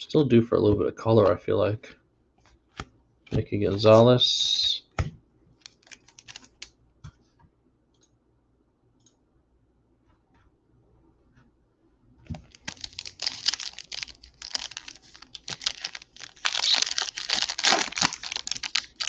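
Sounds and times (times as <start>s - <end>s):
wrapper tearing and crinkling: 5.6s - 6.7s, 12.4s - 19.0s.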